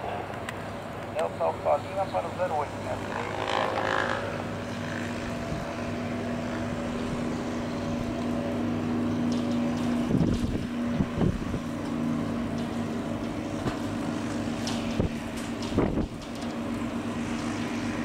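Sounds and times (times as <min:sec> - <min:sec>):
jet engines humming: 0:00.0 - 0:18.0
wind thumps on microphone: 0:10.1 - 0:11.6, 0:14.9 - 0:16.2.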